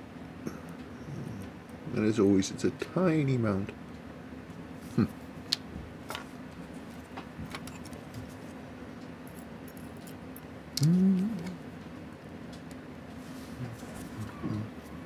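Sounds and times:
person humming: 0:10.8 - 0:11.7, 0:13.5 - 0:14.8.

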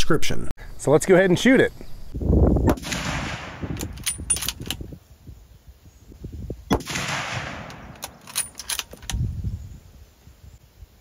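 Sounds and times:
rifle shot with long echo: 0:02.7 - 0:04.5, 0:06.7 - 0:08.6
rifle bolt clicks: 0:02.7 - 0:04.8, 0:06.7 - 0:09.2.

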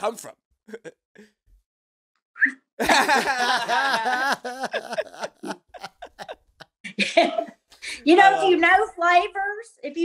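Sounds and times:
woman laughing: 0:02.8 - 0:07.6.

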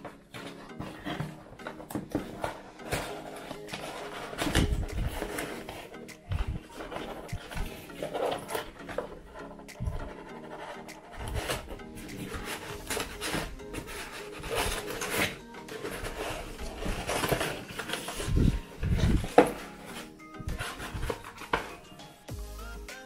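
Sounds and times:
paper rustling against cardboard: 0:00.0 - 0:22.0.

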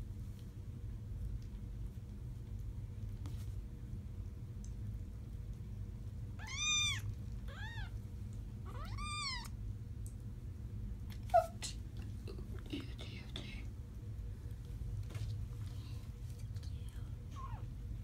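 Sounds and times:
kitten mewing: 0:06.4 - 0:08.0, 0:08.6 - 0:09.6.

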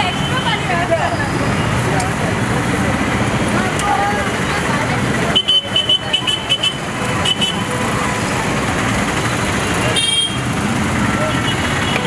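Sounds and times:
steady traffic: 0:00.0 - 0:12.0
voices: 0:00.0 - 0:12.0.

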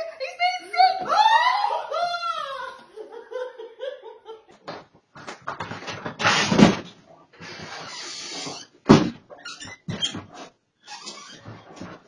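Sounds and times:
person laughing: 0:01.6 - 0:04.7
clicks and knocks: 0:04.6 - 0:07.0.

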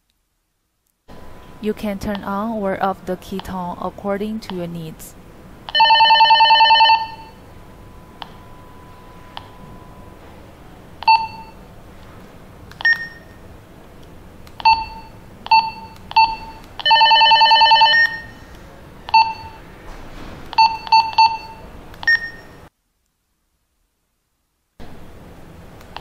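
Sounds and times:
walkie-talkie key-press beeps: 0:14.6 - 0:16.6.

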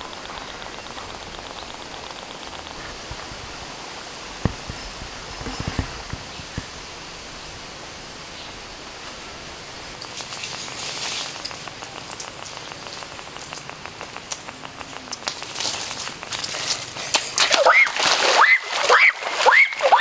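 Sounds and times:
small dry clicks and crackles: 0:00.0 - 0:03.6, 0:10.0 - 0:17.8
water hissing: 0:00.0 - 0:20.0.

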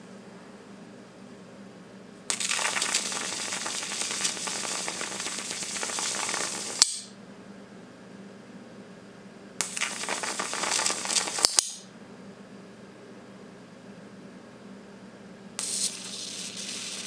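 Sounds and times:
electric arc crackling hiss: 0:02.3 - 0:07.1, 0:09.6 - 0:11.9, 0:15.6 - 0:17.0
arc breaking snap: 0:06.8 - 0:07.1, 0:11.3 - 0:11.8.

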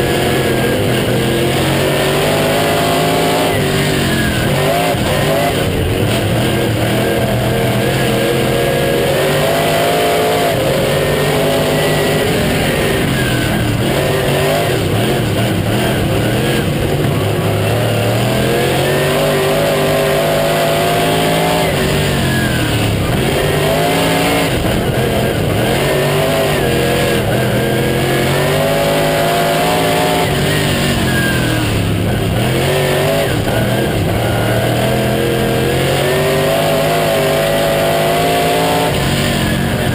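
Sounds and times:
race car engine: 0:00.0 - 0:39.9.

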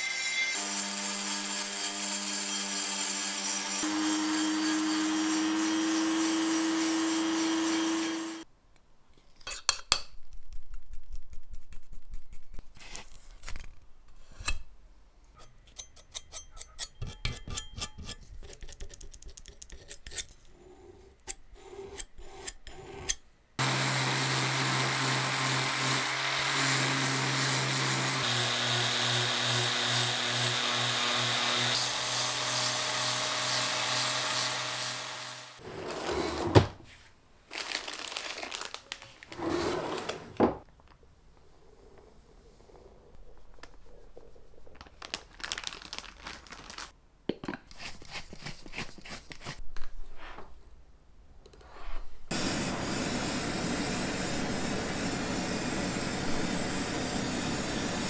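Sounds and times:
rotary tool grinding metal: 0:00.0 - 0:08.4, 0:21.3 - 0:35.6
electric sander running: 0:00.6 - 0:08.4, 0:23.6 - 0:35.6
putty knife scraping and tapping: 0:15.4 - 0:20.4.

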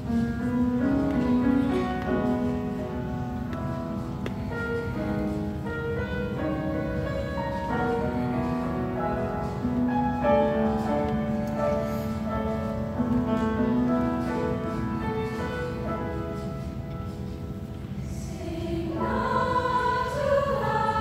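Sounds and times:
grand piano accompaniment: 0:00.0 - 0:21.0
women's choir singing: 0:01.6 - 0:12.6, 0:18.0 - 0:21.0.

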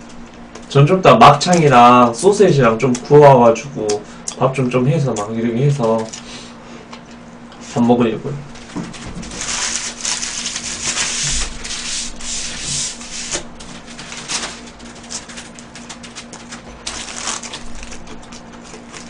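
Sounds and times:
paper wrapper rustling: 0:08.6 - 0:19.0.

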